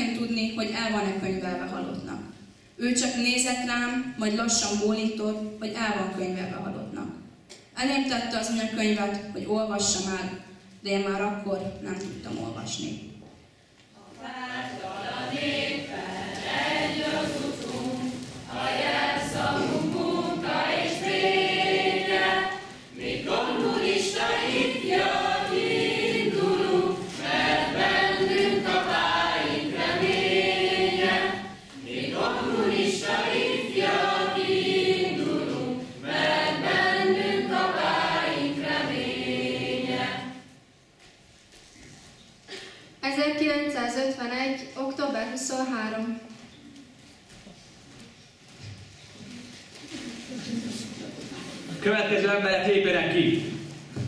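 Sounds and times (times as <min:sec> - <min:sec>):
choir singing: 0:14.0 - 0:40.6.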